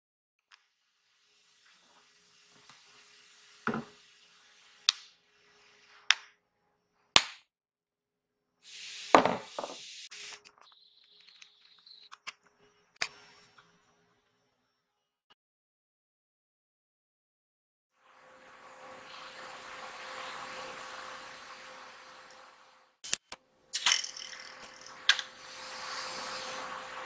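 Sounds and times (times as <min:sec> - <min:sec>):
hiss: 0:00.9 - 0:06.0, 0:08.6 - 0:10.4, 0:24.5 - 0:27.0.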